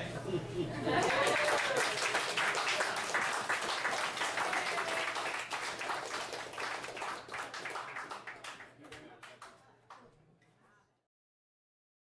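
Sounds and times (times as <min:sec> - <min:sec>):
small audience applauding: 0:00.9 - 0:10.1.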